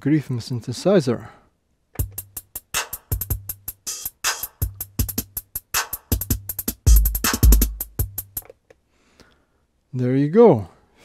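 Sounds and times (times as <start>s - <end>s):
fast electronic drum pattern: 2.0s - 8.5s.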